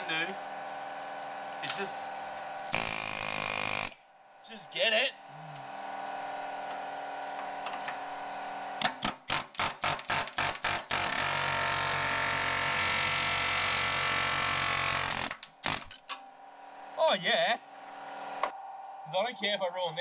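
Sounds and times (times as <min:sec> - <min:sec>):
power tool on car body steel: 0:02.7 - 0:04.0, 0:09.4 - 0:16.0.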